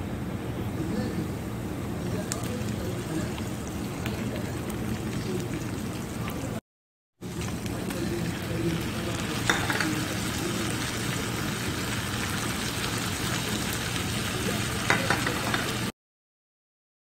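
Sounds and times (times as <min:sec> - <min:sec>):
meat and onion sizzling in a pan: 0:07.2 - 0:15.9.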